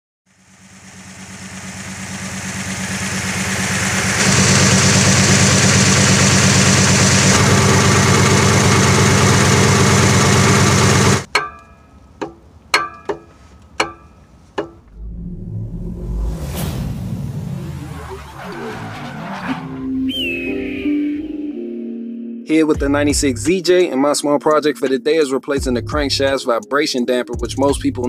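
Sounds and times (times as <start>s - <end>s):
car engine idling: 0.3s - 15.1s
sharp metallic clinks: 11.3s - 14.3s.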